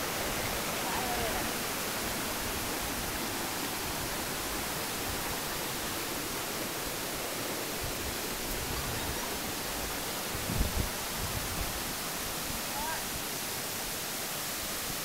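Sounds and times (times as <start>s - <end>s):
water cascading over boulders: 0.0s - 15.0s
waterfall rushing: 0.0s - 15.0s.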